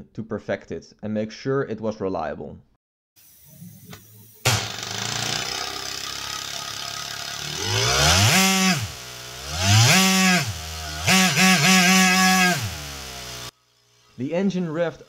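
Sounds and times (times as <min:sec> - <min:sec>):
small air engine buzzing and whining: 0:03.2 - 0:14.2.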